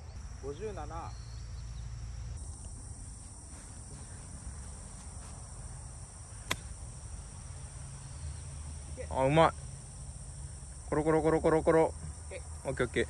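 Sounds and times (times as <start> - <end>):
insects chirring: 0.0 - 13.0
golf club striking ball: 6.4 - 6.8.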